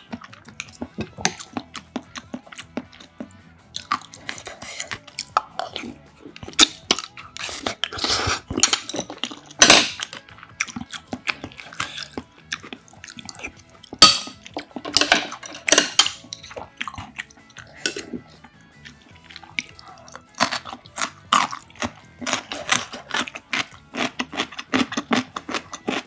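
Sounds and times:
chewing and wet mouth sounds: 0.0 - 26.0
loud sips of broth: 7.4 - 8.5.

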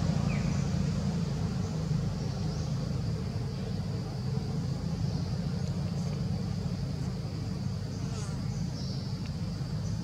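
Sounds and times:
continuous low rumble: 0.0 - 10.0
insects droning: 0.0 - 10.0.

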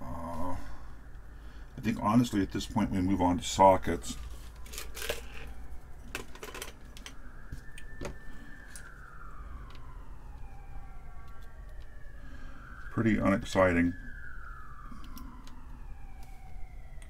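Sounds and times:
police siren wailing: 0.0 - 17.0
small parts and tools clicking: 4.6 - 5.5, 6.1 - 7.2.

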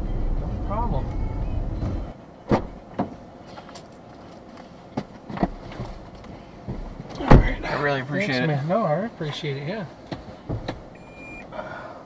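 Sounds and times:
road rumble in car: 0.0 - 11.8
clicks and knocks inside car: 4.9 - 7.7, 10.0 - 11.0.

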